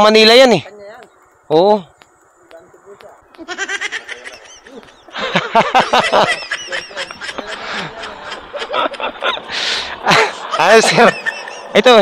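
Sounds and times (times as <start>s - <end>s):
person snickering and laughing: 3.5s - 11.8s.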